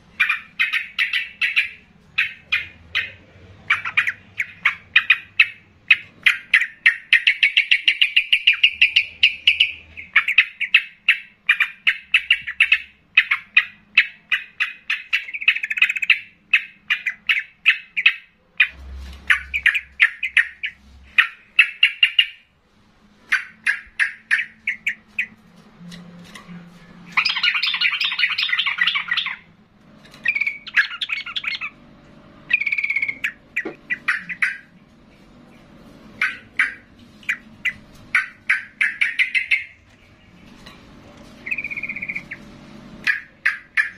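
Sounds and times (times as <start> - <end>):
bird singing sharp chattering notes: 0.2 - 22.4, 27.1 - 29.5, 30.2 - 31.8, 32.4 - 34.7, 36.2 - 40.4, 41.4 - 43.9.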